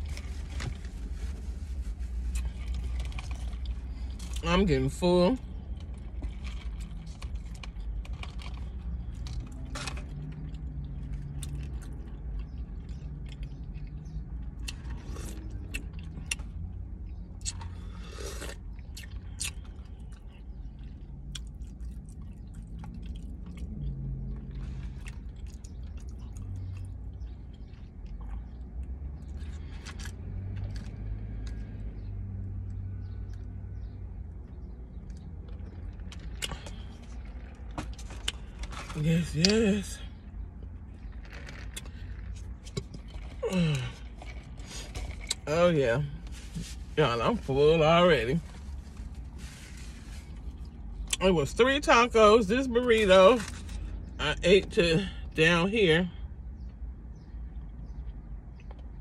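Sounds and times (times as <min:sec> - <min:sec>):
car interior rumble: 0:00.0 - 0:59.0
person chewing food: 0:05.5 - 0:32.0, 0:34.4 - 0:38.9, 0:40.2 - 0:45.4.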